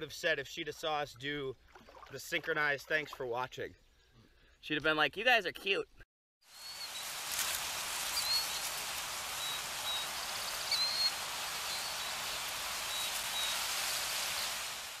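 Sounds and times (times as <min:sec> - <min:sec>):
steady outdoor hiss: 0:06.5 - 0:15.0
bird chirps: 0:08.1 - 0:13.7.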